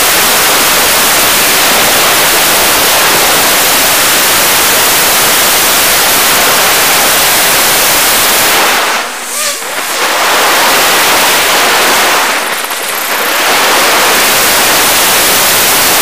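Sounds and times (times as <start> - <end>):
static hiss: 0.0 - 16.0.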